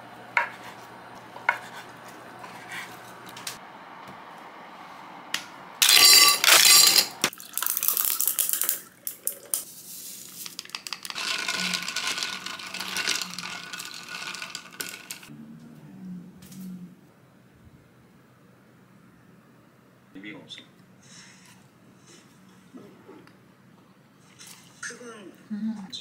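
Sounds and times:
clinking clatter into a cup: 5.8s - 9.6s
liquid pouring: 7.3s - 15.3s.

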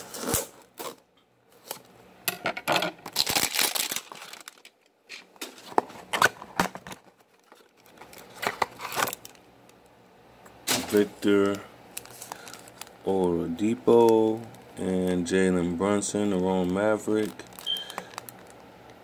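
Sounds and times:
card wrapper crinkling and tearing: 3.0s - 9.4s, 10.7s - 14.7s, 16.0s - 18.6s.

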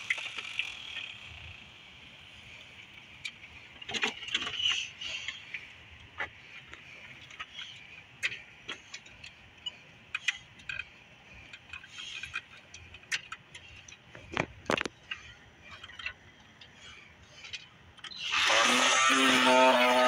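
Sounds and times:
electric string trimmer running: 18.3s - 20.0s.

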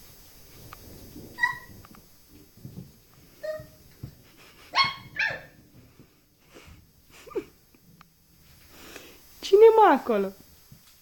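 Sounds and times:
puppy yapping: 1.4s - 1.8s, 3.4s - 3.8s, 4.7s - 5.6s.

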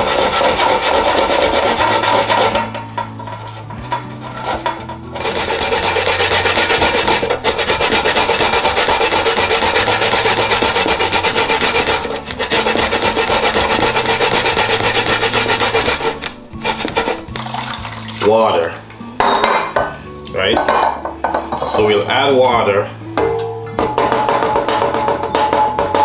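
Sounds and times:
coconut grated on metal grater: 0.0s - 17.6s, 23.9s - 26.0s.

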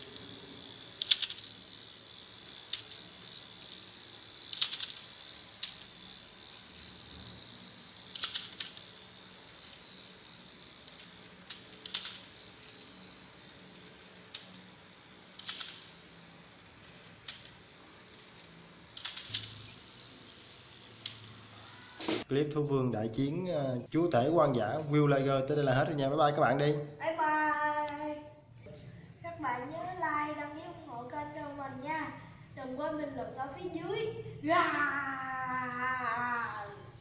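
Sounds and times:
toy motor whirring: 0.0s - 22.3s, 34.5s - 37.0s
plastic clicks of toy legs: 1.0s - 1.5s, 2.7s - 3.1s, 4.4s - 6.0s, 8.1s - 8.9s, 10.8s - 12.8s, 15.3s - 15.9s, 17.2s - 17.6s, 18.3s - 19.7s, 21.0s - 21.4s.

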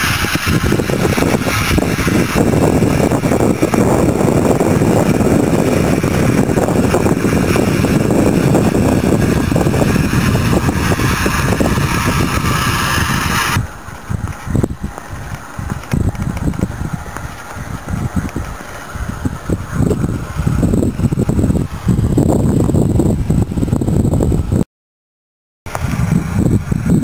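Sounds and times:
aerator churning water: 0.0s - 22.9s
low rumble: 0.0s - 24.6s.

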